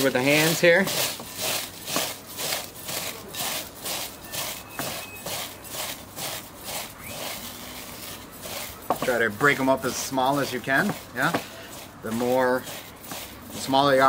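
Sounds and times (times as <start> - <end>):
tortilla chips crunching: 0.0 - 9.2.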